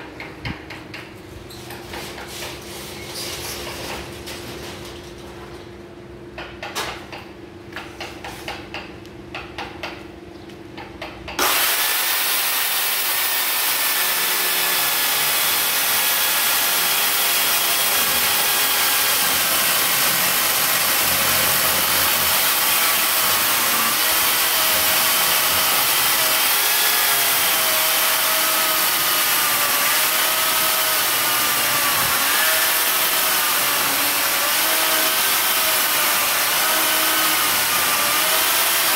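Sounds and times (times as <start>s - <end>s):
electric chainsaw cutting wood: 11.4s - 38.9s.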